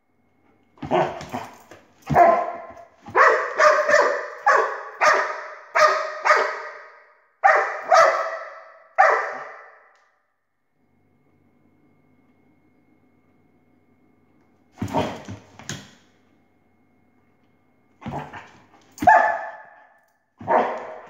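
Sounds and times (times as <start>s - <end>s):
dog barking: 2.1s - 9.9s, 19.0s - 21.0s.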